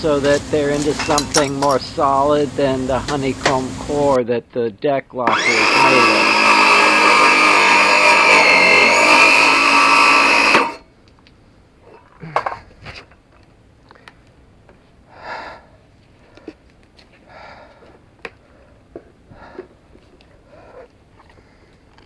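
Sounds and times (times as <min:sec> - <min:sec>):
circular saw cutting plastic: 0:05.2 - 0:10.8.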